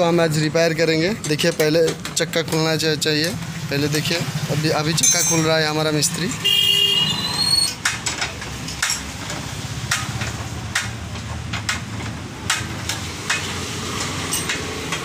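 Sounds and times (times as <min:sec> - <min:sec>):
steady background noise: 0:00.0 - 0:15.0
spanner clicking on metal: 0:07.7 - 0:15.0.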